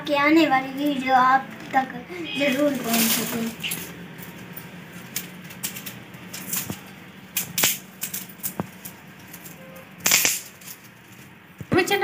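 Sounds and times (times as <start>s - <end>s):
dry twigs crackling and snapping: 2.4s - 11.4s.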